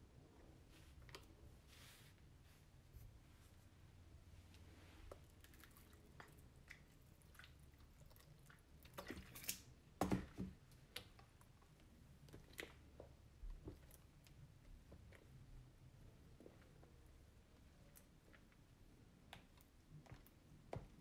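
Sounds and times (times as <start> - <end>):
wet slime squelches: 0.6 - 21.0
spatula squishing slime: 4.6 - 21.0.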